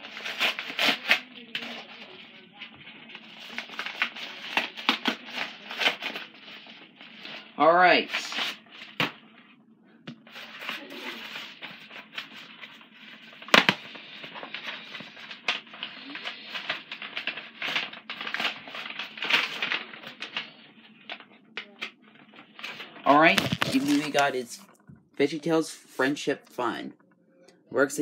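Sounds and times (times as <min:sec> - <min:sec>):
packaging rustling and tearing: 0:00.0 - 0:07.5, 0:10.3 - 0:24.6.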